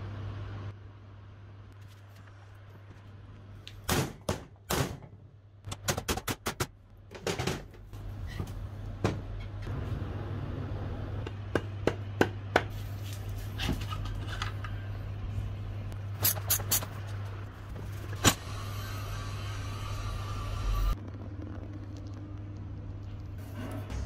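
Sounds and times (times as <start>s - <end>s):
steady low hum: 6.6s - 24.0s.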